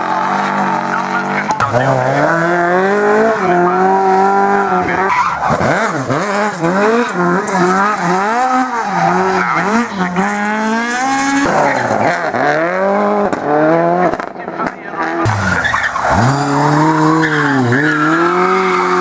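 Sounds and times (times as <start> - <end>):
rally car engine revving: 0.0 - 19.0
tyre squeal: 15.3 - 19.0.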